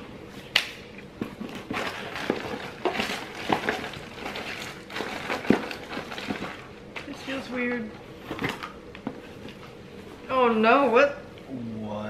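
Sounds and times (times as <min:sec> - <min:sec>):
plastic wrappers crinkling: 0:01.4 - 0:07.4.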